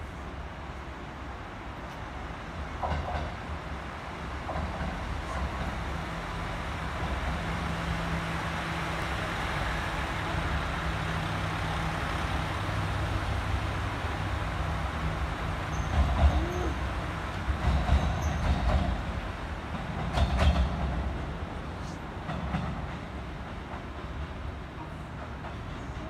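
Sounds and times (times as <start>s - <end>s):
trains rumbling slowly: 0.0s - 26.0s.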